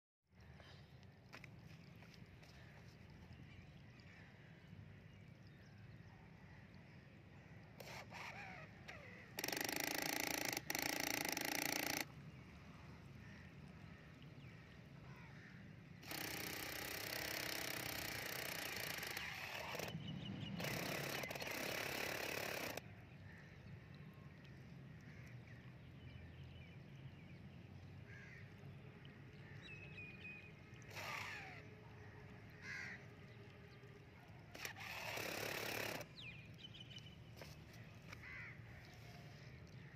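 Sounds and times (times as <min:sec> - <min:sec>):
small electric gear motor: 0:07.8 - 0:12.1, 0:16.0 - 0:22.8, 0:30.9 - 0:31.7, 0:34.5 - 0:36.2
crows cawing: 0:28.1 - 0:28.5, 0:32.5 - 0:33.1, 0:38.1 - 0:38.9.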